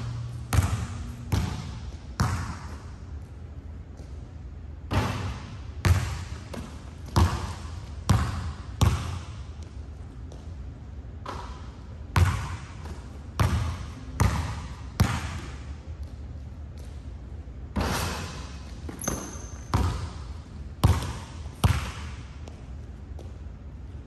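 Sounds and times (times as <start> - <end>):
basketball bouncing on wood floor: 0.0 - 2.9, 4.9 - 10.6, 11.2 - 16.2, 17.8 - 23.4.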